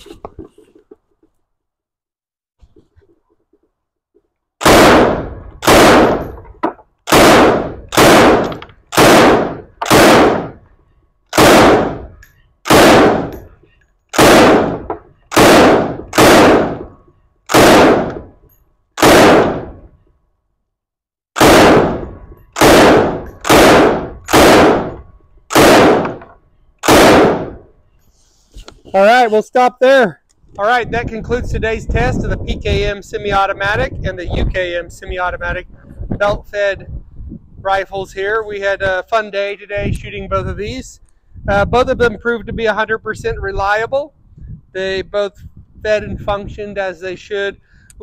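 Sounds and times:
rifle shots cracking: 4.6 - 6.4, 7.0 - 10.6, 11.3 - 13.4, 14.1 - 18.3, 19.0 - 19.9, 21.4 - 27.7.

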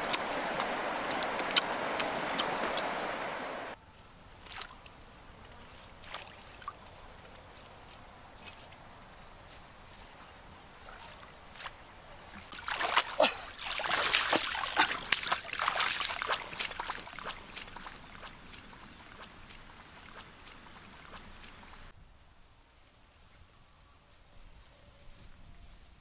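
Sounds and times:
splashing through muddy water: 0.0 - 3.8, 4.4 - 7.0, 10.8 - 21.9.

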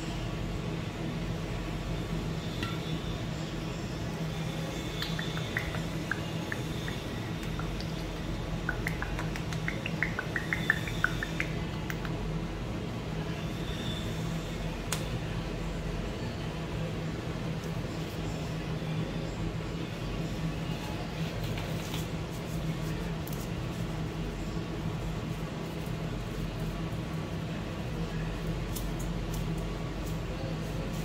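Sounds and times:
steady low hum: 0.0 - 31.0
sauce dripping into metal bowl: 4.9 - 12.2.

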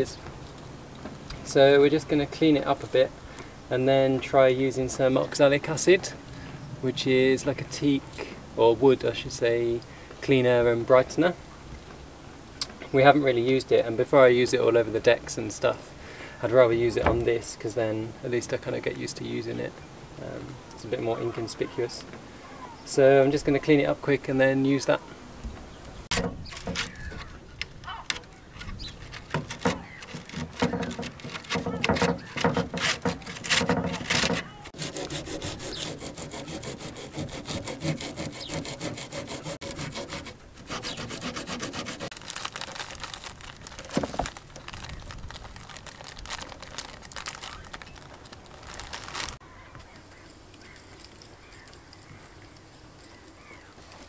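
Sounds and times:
tool scraping wooden grating: 16.8 - 17.5, 26.0 - 43.2.

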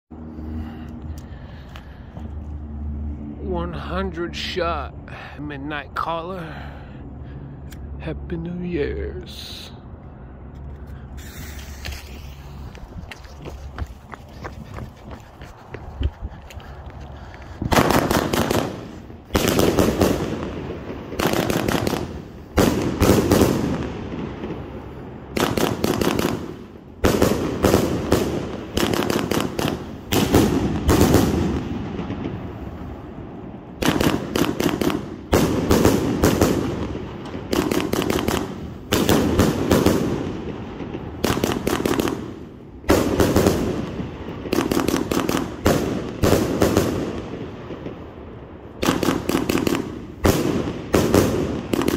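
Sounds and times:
firework volleys of sharp reports: 10.3 - 13.0, 17.6 - 51.9.

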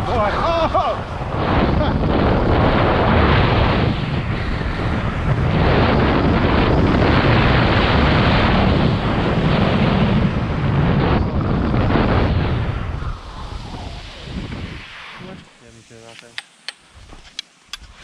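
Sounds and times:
wind rushing over microphone: 0.0 - 18.0
skis hissing on snow: 13.1 - 18.0.

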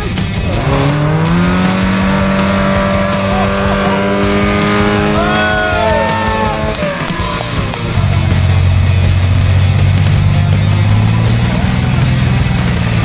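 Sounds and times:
off-road vehicle engine revving: 0.0 - 13.0.

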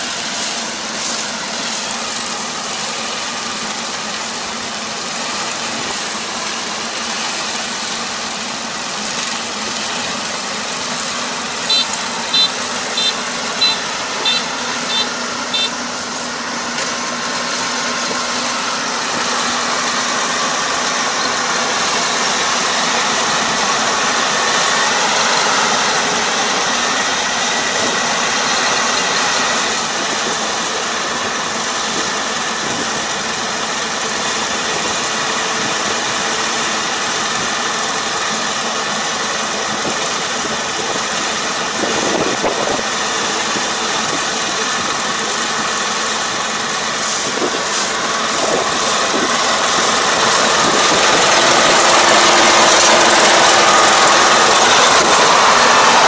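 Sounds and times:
combine harvester running: 0.0 - 56.0
short high beeps: 11.6 - 15.8.

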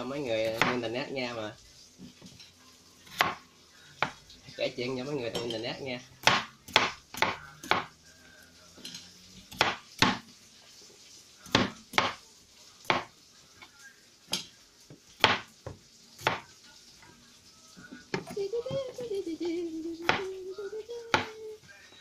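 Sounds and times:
knife chopping on wooden board: 3.1 - 3.4, 6.2 - 7.9, 9.5 - 10.3, 11.5 - 12.2, 12.8 - 13.1, 15.2 - 16.5, 20.0 - 20.3.

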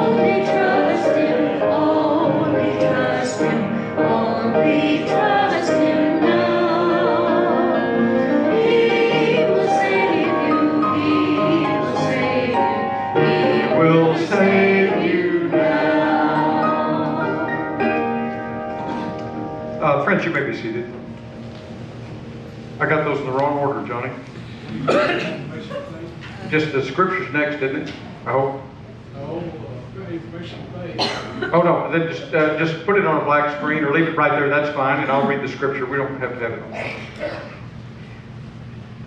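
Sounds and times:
congregation singing a hymn: 0.0 - 19.4
instrumental accompaniment: 0.0 - 23.3.

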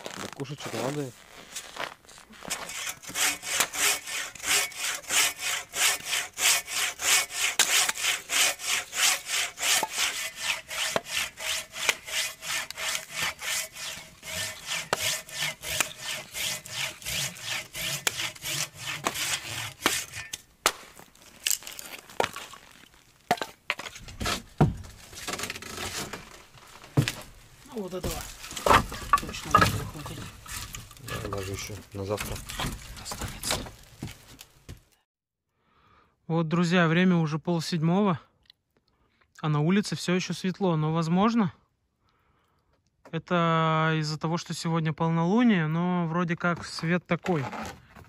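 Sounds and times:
hand saw sawing log: 2.5 - 20.4, 27.8 - 33.6, 47.4 - 47.8
wooden knocks: 24.1 - 26.2, 28.0 - 34.8.

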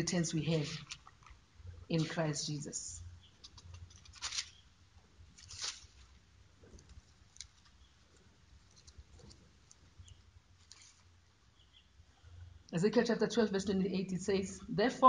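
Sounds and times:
book pages rustling: 0.6 - 1.4, 3.3 - 11.2.

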